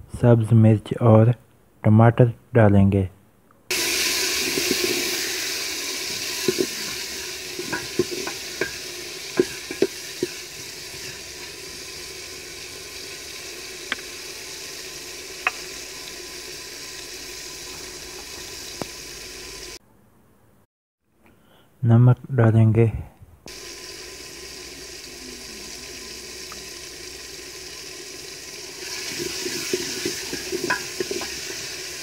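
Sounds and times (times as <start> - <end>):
food sizzling in a pot: 3.7 - 19.8, 23.5 - 32.0
wooden spoon knocking pot: 6.3 - 10.5, 29.2 - 31.6.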